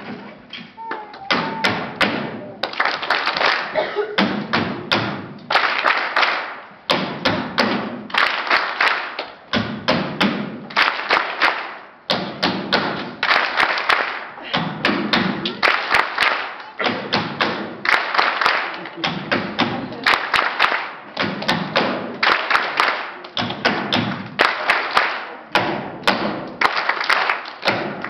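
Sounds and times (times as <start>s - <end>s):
rapid hand claps: 1.3s - 28.0s.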